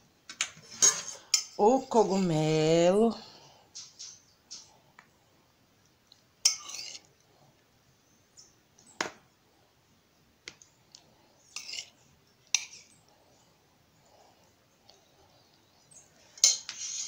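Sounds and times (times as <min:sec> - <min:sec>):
metal spoon clinking on dish: 0:06.5 - 0:07.0.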